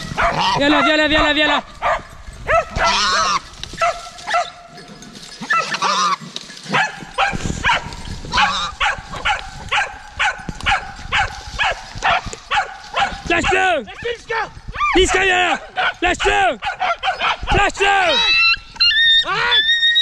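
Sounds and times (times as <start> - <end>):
dogs barking: 0.0 - 4.8, 5.4 - 13.8, 15.6 - 18.6
dogs yelping: 0.0 - 13.8, 14.7 - 20.0.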